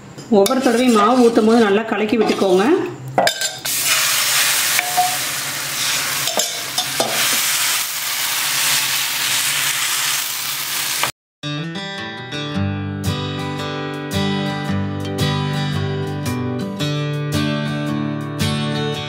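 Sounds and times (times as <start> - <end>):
batter sizzling on a pan: 7.2 - 11.1
strummed acoustic guitar music: 11.4 - 19.0.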